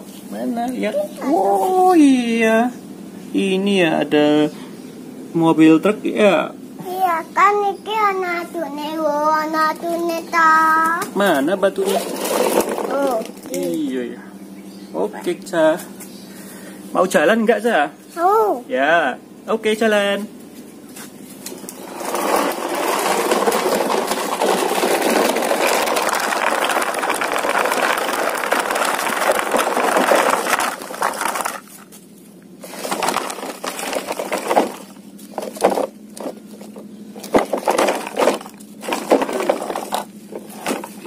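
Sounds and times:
toy truck scraping over dirt: 11.2s - 13.5s, 21.5s - 32.0s, 32.6s - 41.0s.

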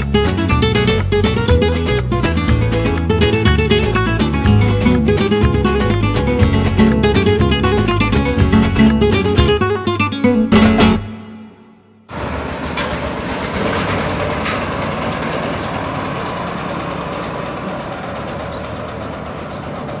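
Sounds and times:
acoustic guitar chord: 0.1s - 12.1s
engine starting and idling: 12.1s - 20.0s.

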